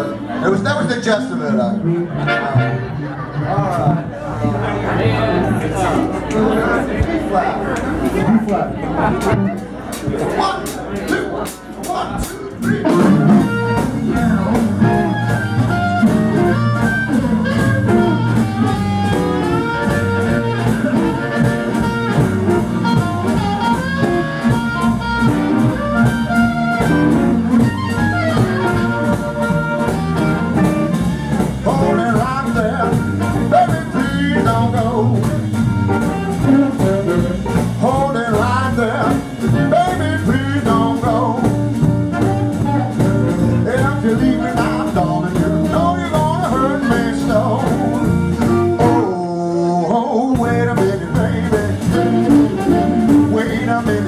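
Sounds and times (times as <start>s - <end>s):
upright bass: 0.0s - 54.0s
drum kit: 9.1s - 54.0s
amplified harmonica melody: 12.8s - 31.4s, 51.0s - 53.8s.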